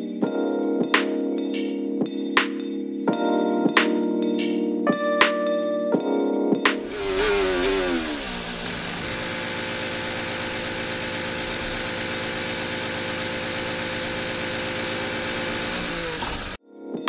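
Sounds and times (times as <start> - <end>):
racing car engine drone: 6.8 - 16.6.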